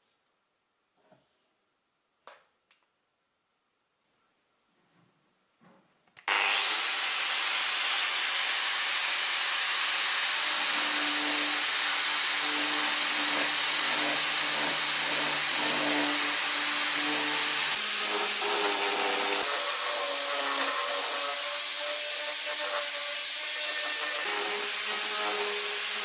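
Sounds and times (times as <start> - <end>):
angle grinder grinding wood: 6.2 - 26.0.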